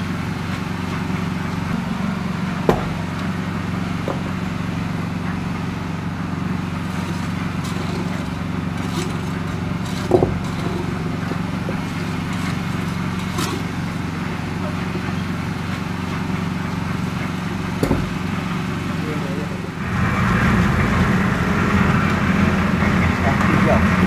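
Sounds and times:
engine running steadily: 0:00.0 - 0:24.0
sharp knocks: 0:02.6 - 0:03.3, 0:04.0 - 0:04.5, 0:10.0 - 0:10.6, 0:17.8 - 0:18.3.

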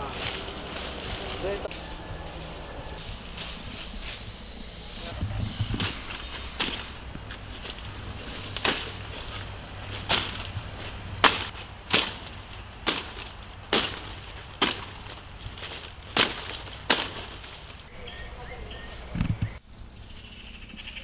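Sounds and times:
machete chopping undergrowth: 0:05.7 - 0:17.9.

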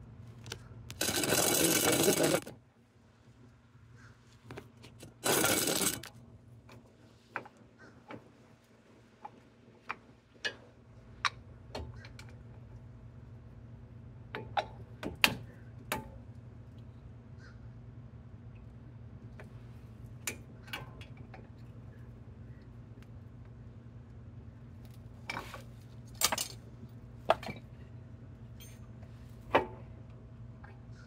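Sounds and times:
steady low hum: 0:00.0 - 0:31.0.

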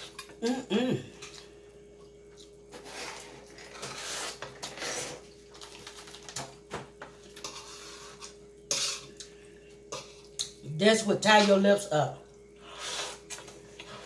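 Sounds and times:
fork scraping metal tray: 0:02.7 - 0:05.2, 0:07.4 - 0:09.1
slurping and sucking noodles: 0:12.6 - 0:14.0.

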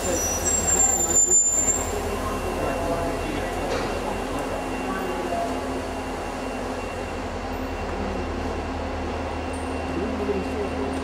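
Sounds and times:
stationary train humming: 0:00.0 - 0:11.0.

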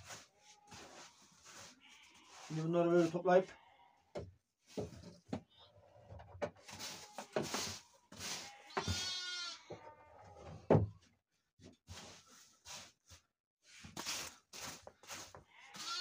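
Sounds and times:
rustling straw bedding: 0:00.0 - 0:03.2, 0:06.6 - 0:09.3, 0:14.0 - 0:16.0
sheep bleating: 0:00.4 - 0:02.5, 0:03.4 - 0:04.1, 0:08.4 - 0:10.4, 0:15.5 - 0:16.0.

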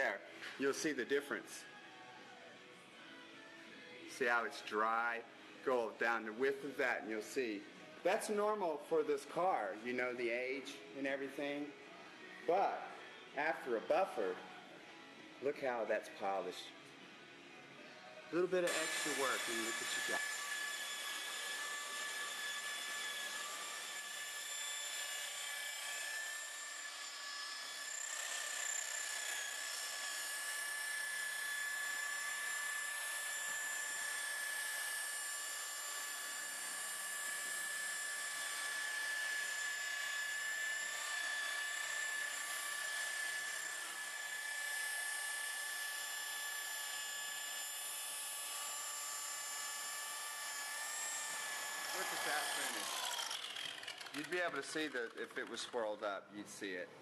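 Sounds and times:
electric rotary polisher whining: 0:18.6 - 0:55.8.

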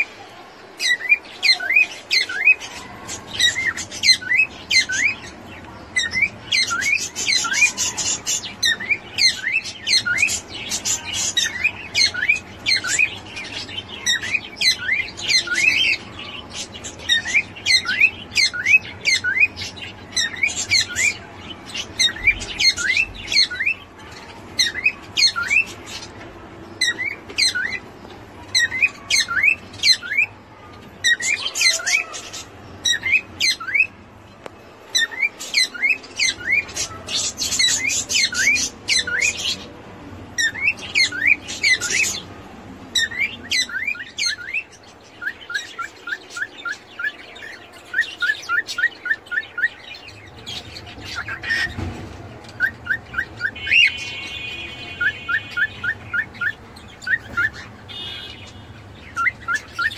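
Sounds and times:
cockatiel chirping: 0:43.0 - 0:50.0, 0:51.0 - 0:51.8, 0:52.6 - 0:54.4, 0:55.0 - 0:59.9.

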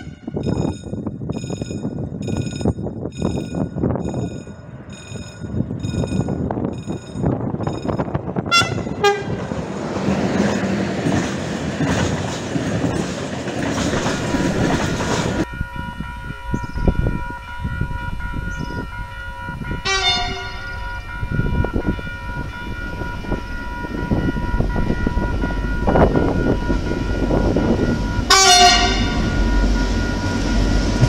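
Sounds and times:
distant train horn: 0:00.0 - 0:00.4, 0:08.4 - 0:09.6, 0:19.8 - 0:23.1, 0:28.2 - 0:30.3
locomotive horn toots: 0:00.0 - 0:00.4, 0:08.4 - 0:09.5, 0:19.8 - 0:20.8, 0:28.2 - 0:29.4
train rail and wheel noise: 0:00.0 - 0:31.0.

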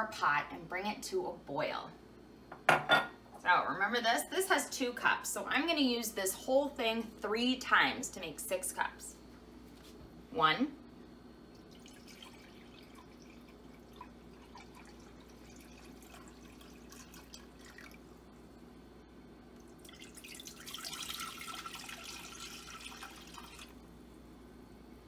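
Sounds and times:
water trickling into cup: 0:11.5 - 0:18.2, 0:19.6 - 0:23.8
water splashing into pot: 0:11.6 - 0:18.1, 0:19.6 - 0:23.8.

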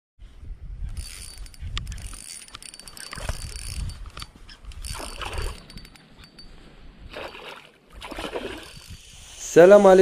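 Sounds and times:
fishing reel clicking: 0:00.9 - 0:06.5, 0:08.6 - 0:09.2.

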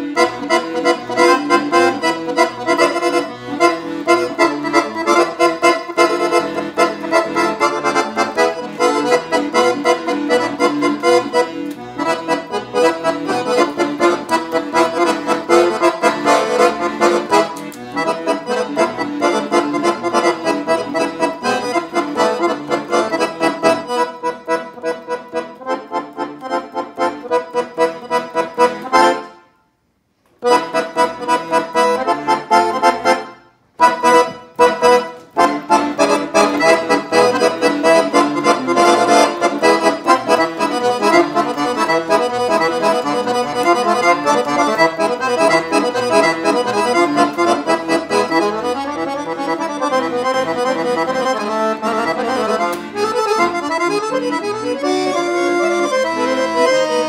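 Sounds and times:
piano accordion dance tune: 0:00.0 - 0:29.8, 0:30.4 - 0:57.0.

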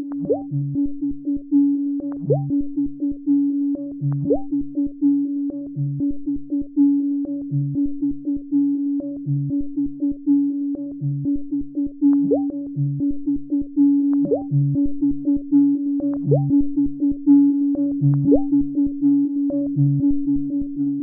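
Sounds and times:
electronic synthesizer music: 0:08.8 - 0:21.0.

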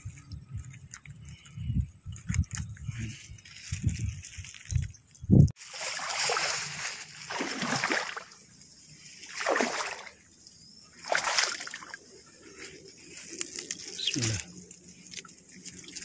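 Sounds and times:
creek water splashing: 0:05.6 - 0:08.5, 0:09.2 - 0:10.3, 0:10.9 - 0:12.0.

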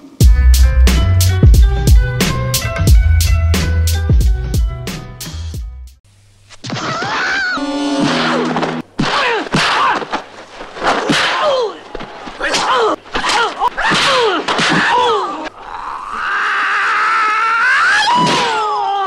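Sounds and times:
thwacking blows: 0:06.5 - 0:15.6, 0:17.9 - 0:18.8
man shouting: 0:12.4 - 0:15.5.

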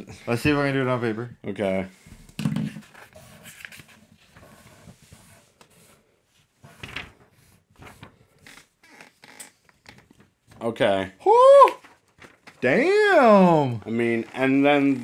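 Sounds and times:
paper rustling: 0:02.7 - 0:08.5, 0:11.8 - 0:15.0.

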